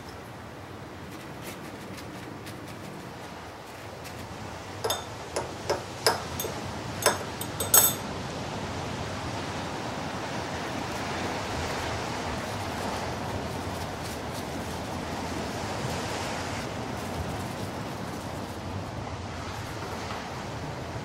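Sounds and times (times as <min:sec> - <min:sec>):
metal spatula clinking on glass: 0:04.8 - 0:08.1.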